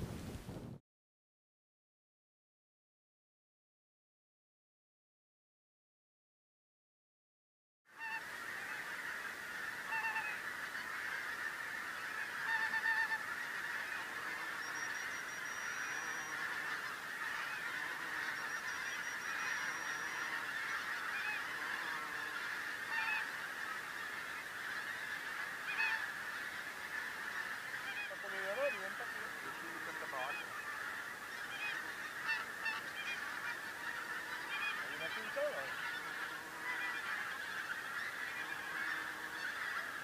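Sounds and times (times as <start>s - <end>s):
geese honking: 7.9s - 40.0s.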